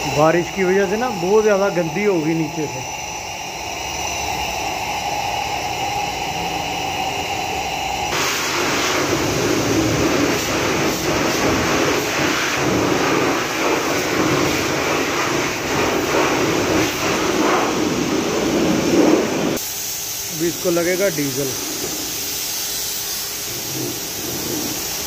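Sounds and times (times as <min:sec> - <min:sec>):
pressure washer spray hissing: 0:08.1 - 0:25.0
washer machine running: 0:08.2 - 0:19.6.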